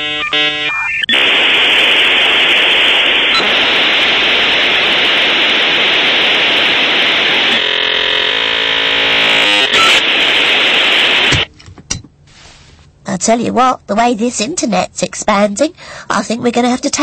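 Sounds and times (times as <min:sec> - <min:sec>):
dial-up modem hiss: 0:00.0 - 0:11.5
modem tones: 0:00.0 - 0:11.5.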